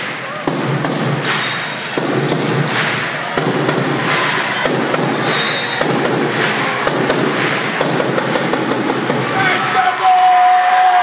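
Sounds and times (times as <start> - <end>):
crowd voices: 0.0 - 11.0
basketball bouncing: 3.3 - 9.3
shoe squeak: 5.2 - 5.8.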